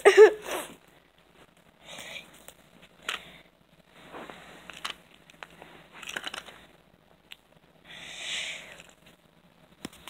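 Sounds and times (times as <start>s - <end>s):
toys being handled: 1.4s - 3.4s, 4.0s - 7.5s, 8.5s - 9.2s.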